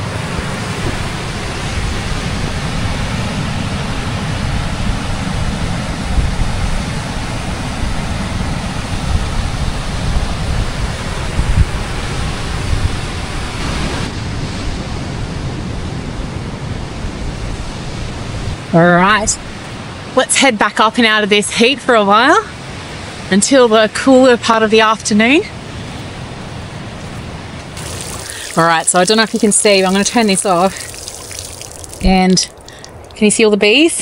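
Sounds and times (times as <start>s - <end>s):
ocean surf: 0.0s - 18.8s, 25.5s - 33.1s
wind gusting on microphone: 0.0s - 20.2s.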